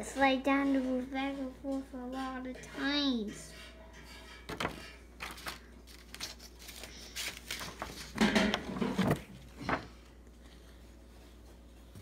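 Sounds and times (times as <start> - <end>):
paper rustling and crinkling: 4.5 - 11.4.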